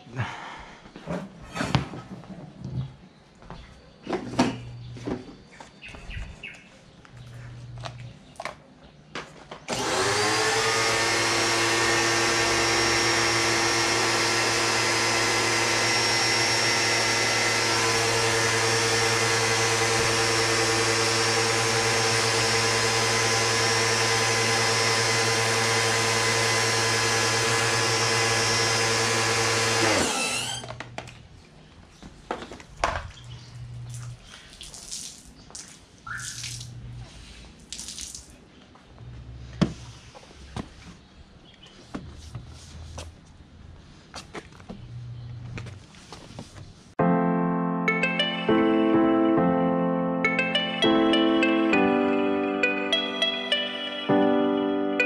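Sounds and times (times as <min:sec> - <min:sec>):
pressure washer running: 0:09.7 - 0:31.0.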